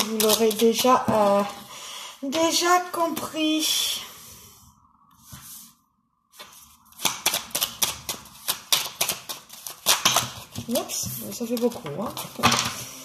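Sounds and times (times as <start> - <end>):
cards being shuffled: 0.0 - 1.5, 6.4 - 12.9.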